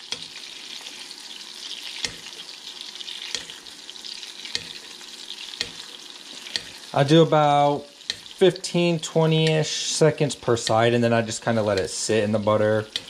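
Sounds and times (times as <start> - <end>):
steak sizzling in a pan: 0.0 - 13.0
spoon clinking against pan: 3.3 - 3.6, 4.5 - 5.9, 6.5 - 6.8, 8.0 - 8.4.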